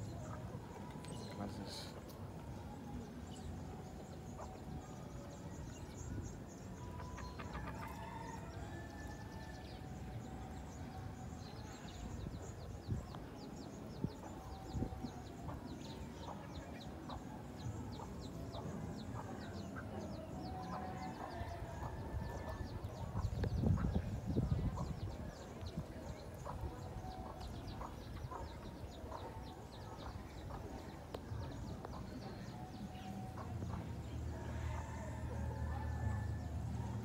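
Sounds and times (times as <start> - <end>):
chickens clucking: 18.0 - 32.2.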